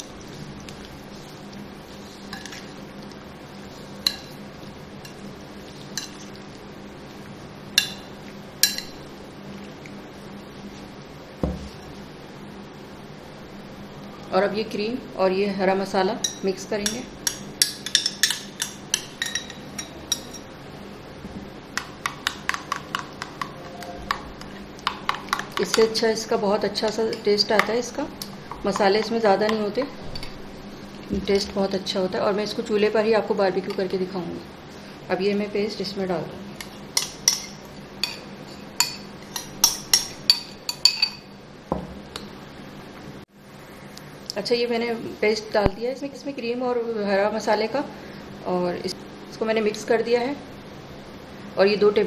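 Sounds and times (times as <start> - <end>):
metal spoon clinking bowls: 16.2 - 20.5, 36.6 - 41.3.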